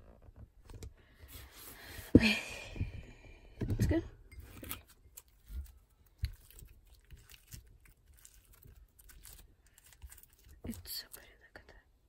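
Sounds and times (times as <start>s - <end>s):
slime crackling and squishing: 4.5s - 11.2s.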